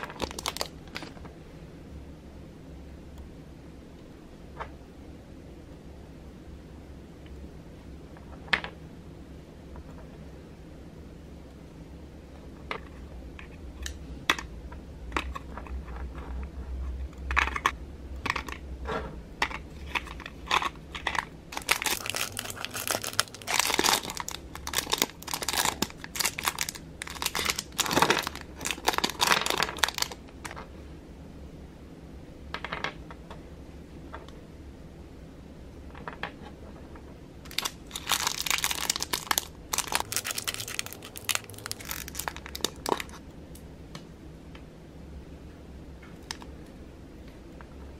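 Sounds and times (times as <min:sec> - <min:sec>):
plastic bags crinkling: 0:00.0 - 0:01.2, 0:19.6 - 0:30.2, 0:37.5 - 0:43.2.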